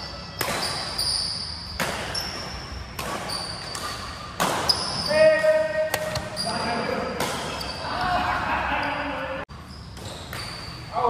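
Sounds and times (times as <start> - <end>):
shoes squeaking on court floor: 0.0 - 8.1, 9.5 - 11.0
rackets hitting shuttlecock: 0.2 - 1.1, 1.7 - 7.8.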